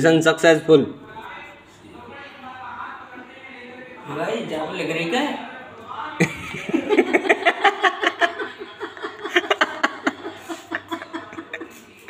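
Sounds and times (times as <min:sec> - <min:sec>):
people laughing: 0:06.2 - 0:12.0.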